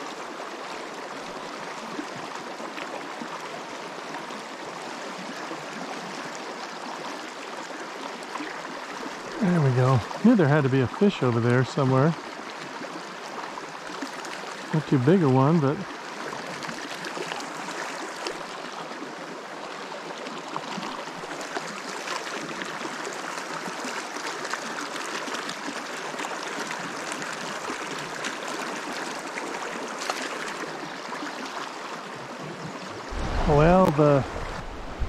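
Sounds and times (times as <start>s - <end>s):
river water rushing: 26.0s - 35.0s.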